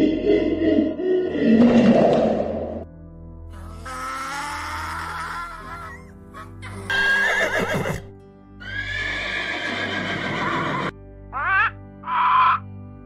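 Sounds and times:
background music: 0.0s - 13.0s
donkey braying: 3.5s - 12.7s.

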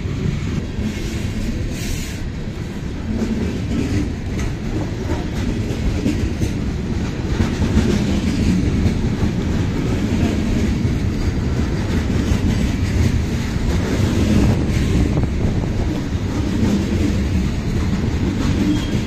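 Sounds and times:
low train rumble: 0.0s - 19.0s
train wheels clacking on rails: 0.0s - 19.0s.

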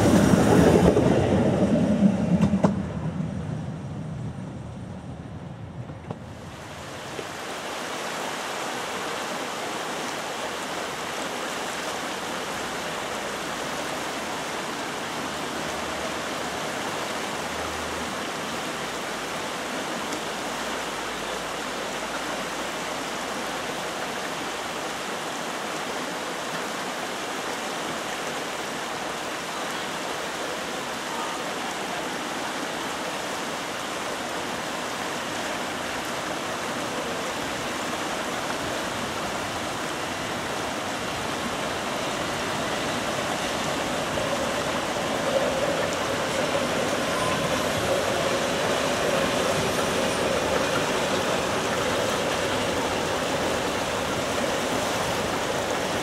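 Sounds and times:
river rapids rushing: 0.0s - 3.0s, 6.3s - 56.0s
train running: 0.0s - 4.8s, 32.9s - 56.0s.

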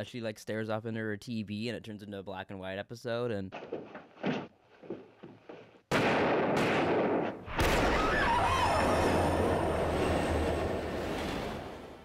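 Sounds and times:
sudden bangs: 5.9s - 11.6s.

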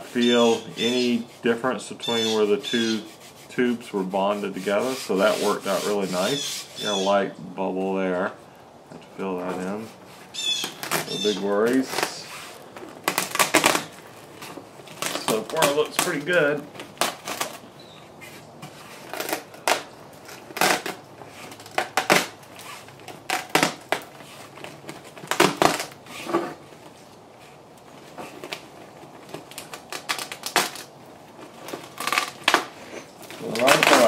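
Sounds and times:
hands crackling on tube: 10.5s - 26.0s, 27.8s - 34.0s.

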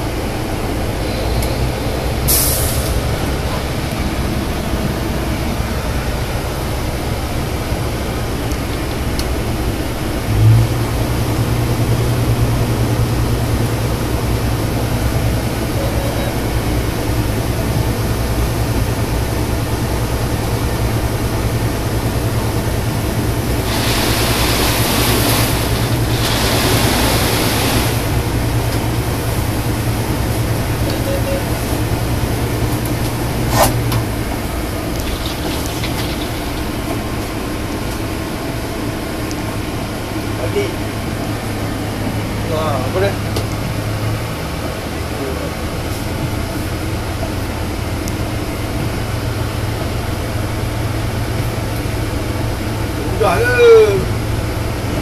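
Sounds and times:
truck engine and pump droning: 0.0s - 55.0s
hissing rush of water spray: 2.0s - 6.5s, 23.2s - 28.6s, 34.8s - 37.5s.

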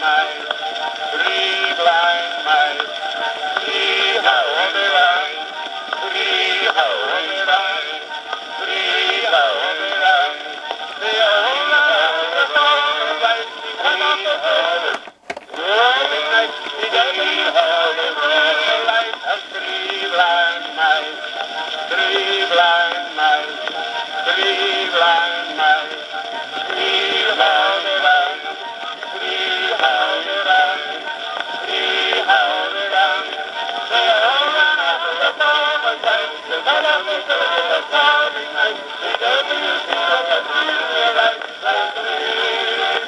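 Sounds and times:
old record of singing on a gramophone: 0.0s - 43.0s.

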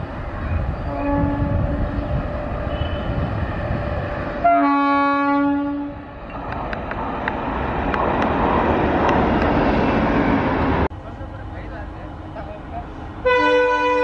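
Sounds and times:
passing train rumble: 0.0s - 14.0s
locomotive air horn blast: 0.9s - 2.1s, 4.4s - 6.0s, 13.2s - 14.0s.

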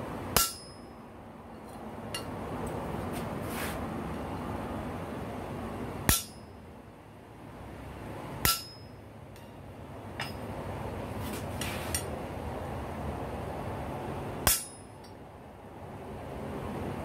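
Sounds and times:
hammer striking an anvil: 0.4s - 0.9s, 6.1s - 6.6s, 8.4s - 9.6s, 14.4s - 15.1s.

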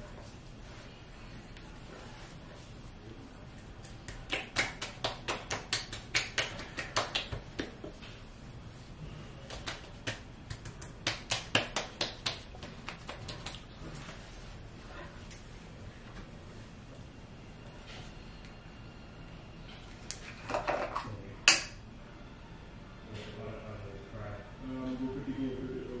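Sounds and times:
hands patting skin: 3.3s - 14.5s.

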